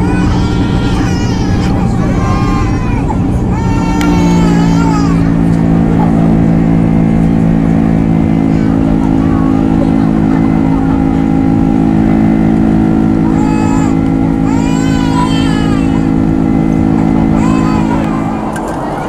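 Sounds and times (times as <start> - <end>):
constant low hum: 0.0 - 19.0
jet engines droning: 0.0 - 19.0.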